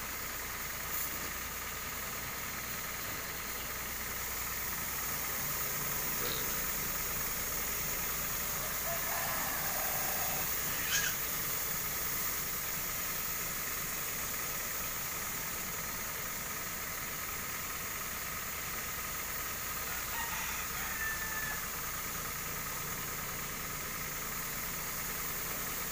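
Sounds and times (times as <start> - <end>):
spray hissing: 0.0 - 20.8, 21.6 - 25.9
small petrol engine running: 0.0 - 25.9
short high squeal: 10.7 - 11.3.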